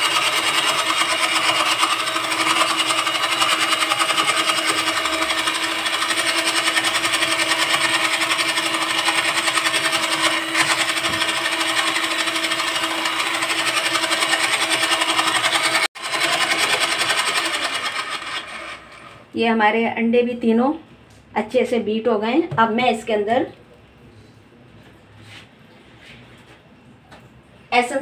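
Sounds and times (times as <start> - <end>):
electric hand mixer whining: 0.0 - 19.3.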